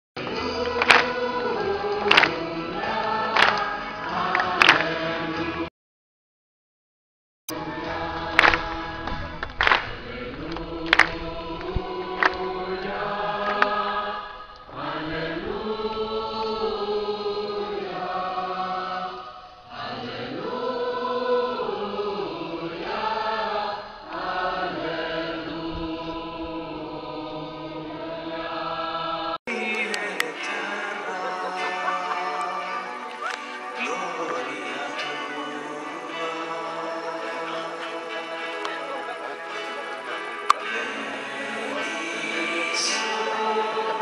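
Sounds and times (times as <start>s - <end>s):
crowd singing a hymn: 0.2s - 5.7s, 7.5s - 44.0s
sharp claps: 0.6s - 1.2s, 1.9s - 2.4s, 3.4s - 5.0s, 8.4s - 11.2s, 12.2s - 12.4s.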